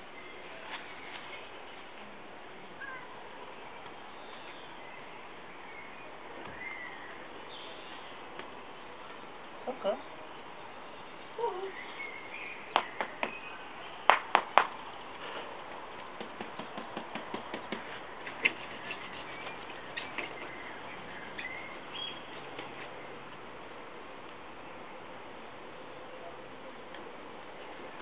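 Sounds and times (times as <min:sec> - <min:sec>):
dog claws clicking on paving: 0:16.0 - 0:20.6.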